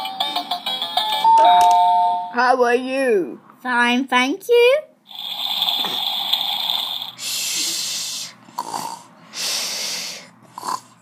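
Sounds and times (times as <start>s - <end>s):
person pretend snoring: 5.1s - 11.0s.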